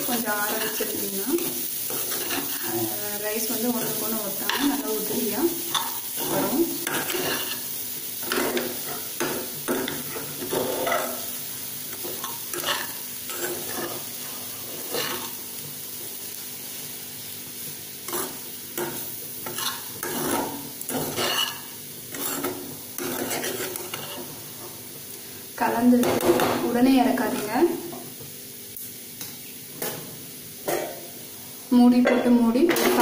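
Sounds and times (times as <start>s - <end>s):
hot pan sizzling: 0.0s - 33.0s
spoon scraping pan: 0.2s - 11.3s, 11.9s - 14.1s, 14.8s - 15.4s, 18.1s - 24.4s.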